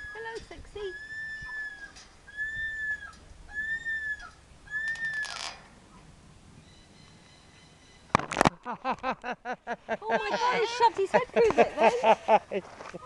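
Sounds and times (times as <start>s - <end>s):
cockatoo whistling: 1.0s - 5.4s.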